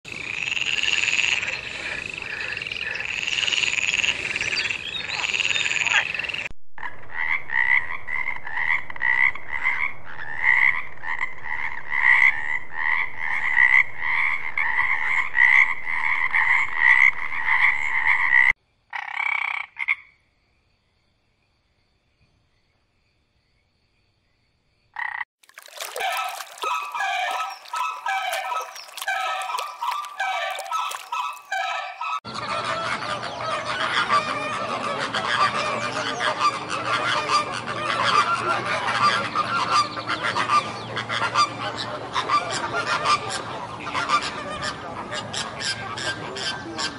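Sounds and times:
frogs croaking: 0.1 - 20.8, 23.4 - 46.9
birds honking: 25.6 - 44.8.

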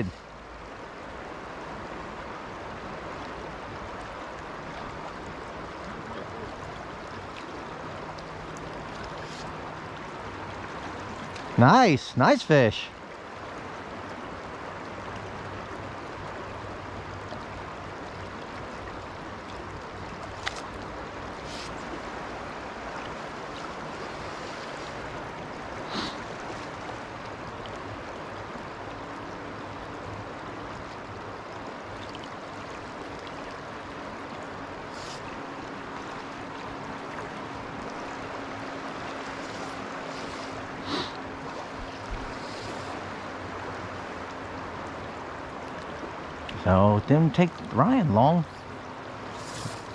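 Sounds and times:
river current rushing over riffles: 7.6 - 13.0, 18.6 - 28.1, 32.6 - 49.9.

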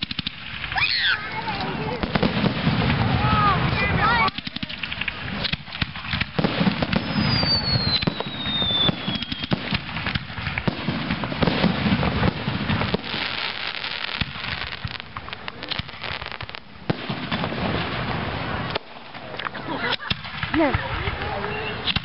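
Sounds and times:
fireworks banging and crackling: 0.0 - 22.0
falling firework whistle: 6.8 - 9.8.

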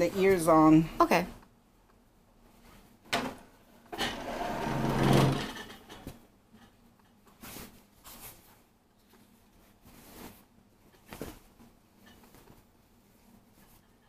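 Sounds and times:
fabric rustling and crumpling: 7.4 - 13.8.

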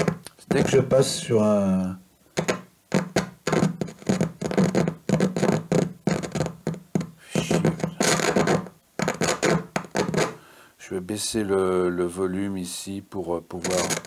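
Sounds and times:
crackling and scratching: 0.0 - 1.4, 2.4 - 10.4, 13.5 - 14.0
electrical hum: 0.0 - 14.0.

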